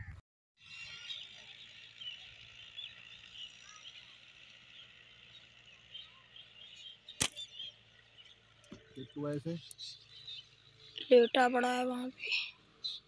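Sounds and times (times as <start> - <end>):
small birds chirping: 0.6 - 13.0
slingshot shot crack: 7.2 - 7.5.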